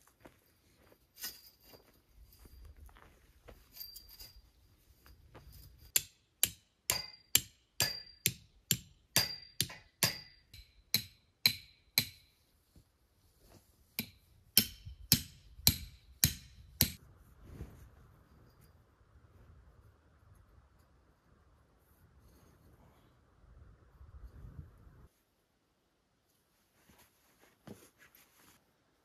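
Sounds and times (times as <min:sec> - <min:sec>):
hammer striking metal: 0:05.9 - 0:12.3, 0:14.0 - 0:17.0.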